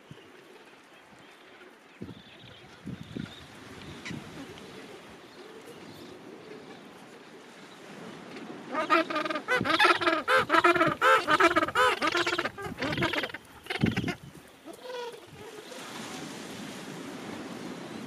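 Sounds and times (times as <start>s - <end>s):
steady background hiss: 0.0s - 18.0s
penguin braying call: 8.8s - 15.2s.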